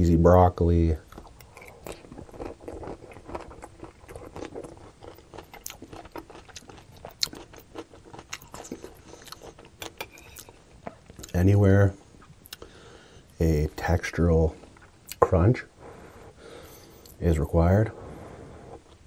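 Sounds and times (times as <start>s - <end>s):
crunchy chewing: 1.0s - 12.9s.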